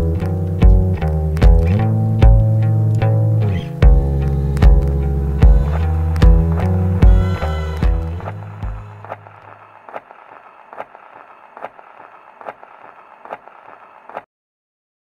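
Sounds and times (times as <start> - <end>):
low music note: 1.7 - 9.0.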